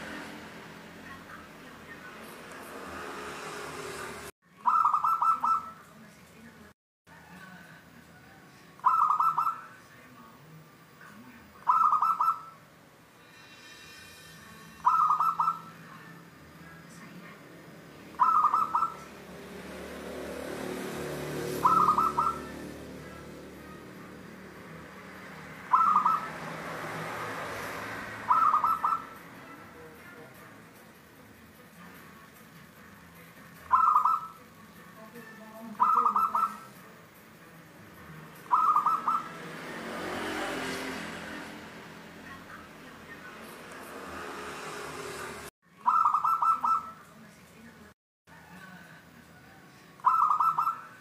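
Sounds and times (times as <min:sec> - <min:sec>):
dove cooing: 0:04.6 - 0:05.8, 0:08.8 - 0:09.6, 0:11.6 - 0:12.5, 0:14.8 - 0:15.7, 0:18.2 - 0:19.1, 0:21.4 - 0:23.3, 0:25.6 - 0:26.6, 0:28.2 - 0:29.2, 0:33.7 - 0:34.4, 0:35.7 - 0:36.7, 0:38.5 - 0:39.4, 0:45.9 - 0:47.0, 0:50.0 - 0:50.9.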